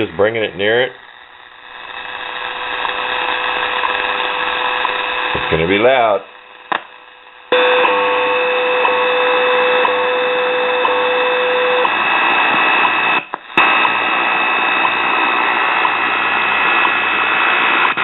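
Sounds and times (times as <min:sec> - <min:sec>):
radio static: 0:00.0 - 0:18.0
steady radio tone: 0:00.0 - 0:18.0
time signal ticks: 0:08.7 - 0:18.0.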